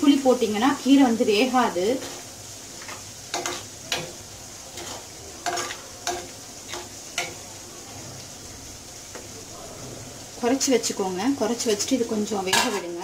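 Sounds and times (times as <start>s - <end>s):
steady hiss: 0.0s - 13.0s
metal ladle scraping a pot: 2.8s - 8.2s.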